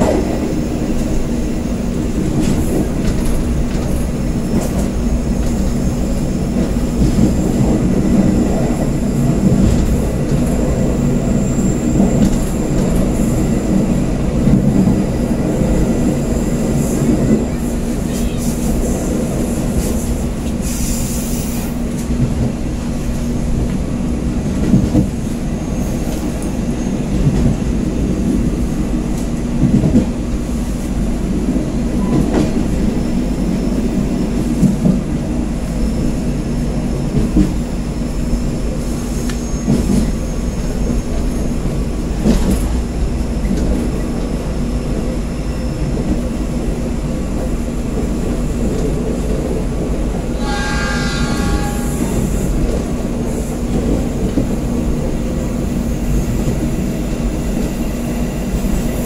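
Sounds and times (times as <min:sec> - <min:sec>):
train wheels rumbling on track: 0:00.0 - 0:59.0
train horn: 0:50.3 - 0:52.8.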